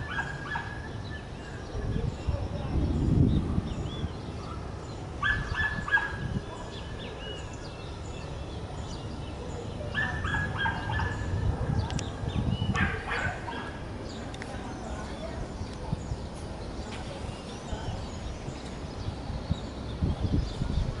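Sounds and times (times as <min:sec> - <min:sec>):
wind rumble on microphone: 0:00.0 - 0:21.0
dog barking: 0:00.1 - 0:00.8, 0:04.4 - 0:06.8, 0:09.9 - 0:11.9, 0:12.7 - 0:13.8.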